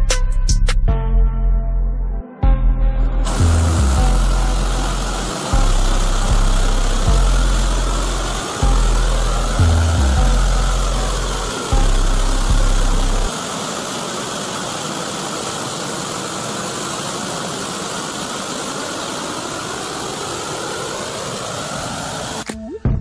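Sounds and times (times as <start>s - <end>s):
deep low tones: 0.9s - 13.3s
gas torch flame roaring: 3.2s - 22.4s.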